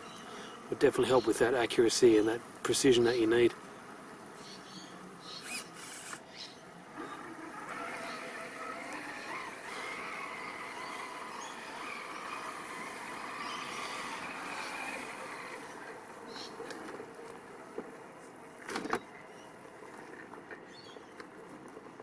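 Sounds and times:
rc car motor whining: 4.4 - 17.5.

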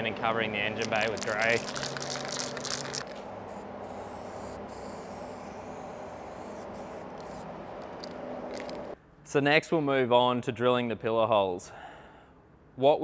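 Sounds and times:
aerosol can spraying hiss: 3.5 - 7.4.

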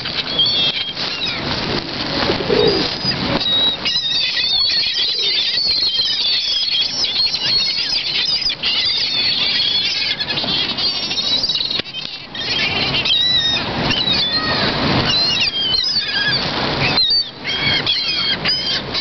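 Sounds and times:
gulls squealing: 0.0 - 19.0
wings flapping: 0.0 - 19.0.

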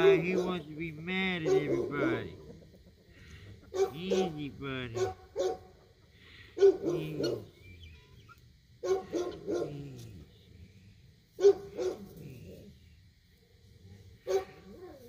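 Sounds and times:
dog barking: 0.0 - 0.7, 1.4 - 2.4, 3.6 - 5.8, 6.5 - 7.5, 8.8 - 9.8, 11.4 - 12.1, 14.2 - 14.8.

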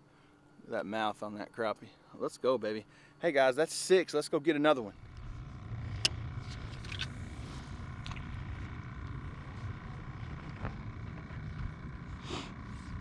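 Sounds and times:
electric motor humming: 5.0 - 13.0.

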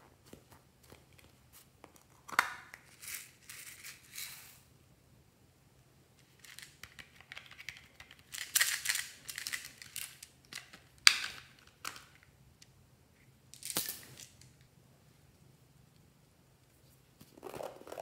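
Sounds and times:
rustling and scraping of plastic toy: 2.8 - 4.6, 6.2 - 12.1, 16.8 - 18.0.

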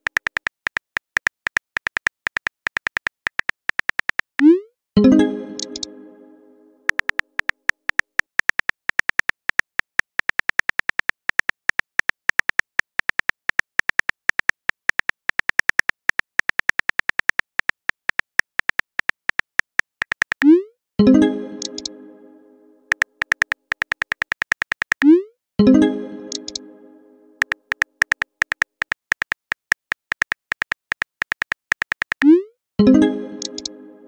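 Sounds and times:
phone keyboard clicks: 0.0 - 4.3, 6.9 - 20.5, 22.9 - 25.1, 26.3 - 26.6, 27.4 - 32.3, 33.4 - 33.7
ringing chime tone: 5.0 - 6.8.

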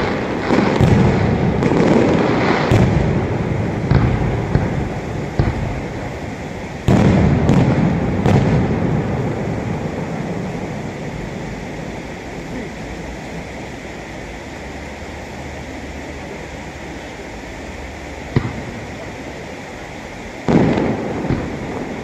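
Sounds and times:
firework shells bursting: 0.0 - 12.2, 18.1 - 22.0
low rolling rumble: 0.0 - 22.0.

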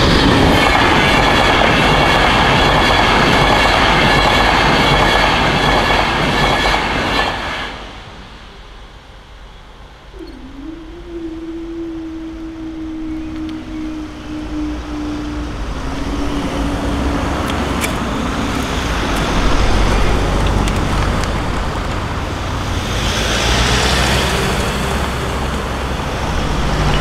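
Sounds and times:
vehicle passing by: 12.8 - 27.0.

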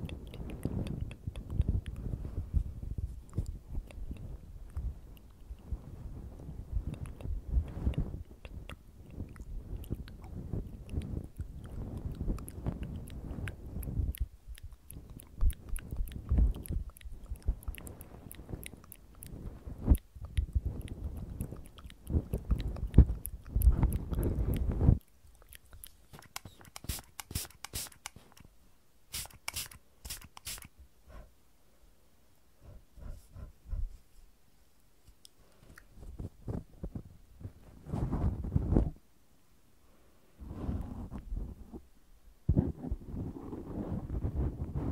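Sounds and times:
scratchy rustle on microphone: 35.6 - 39.0, 40.4 - 41.9, 42.5 - 44.9.

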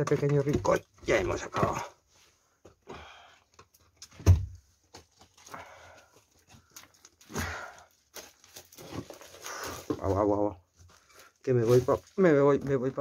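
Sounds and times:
breathy noises: 1.6 - 3.8, 5.3 - 8.1, 9.2 - 10.1.

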